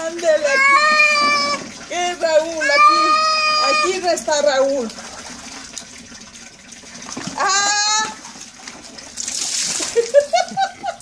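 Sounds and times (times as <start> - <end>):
water pouring and splashing: 0.0 - 11.0
cat yowling: 0.4 - 1.7, 2.6 - 4.0.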